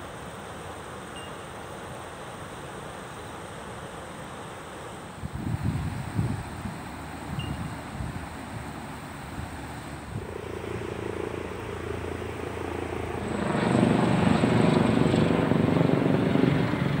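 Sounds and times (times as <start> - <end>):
helicopter rotor and engine: 5.1 - 17.0.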